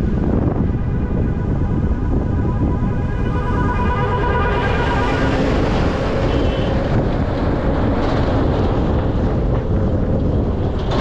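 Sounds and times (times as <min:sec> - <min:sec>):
vehicle road rumble: 0:00.0 - 0:11.0
wind on microphone: 0:00.0 - 0:11.0
background music: 0:00.2 - 0:06.9.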